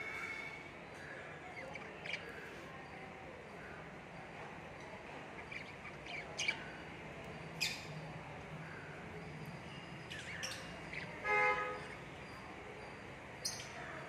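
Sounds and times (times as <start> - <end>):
budgerigars chirping: 1.6 - 2.4, 5.3 - 8.0, 10.1 - 11.2.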